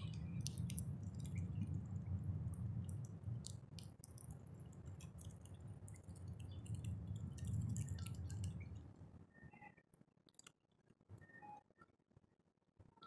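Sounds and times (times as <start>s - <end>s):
bird pecking seed: 0.0s - 8.8s.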